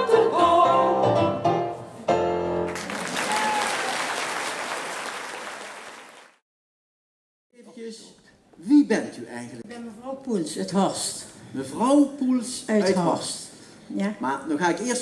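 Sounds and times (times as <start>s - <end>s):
women singing: 0.0s - 1.1s
audience applauding: 2.7s - 6.4s.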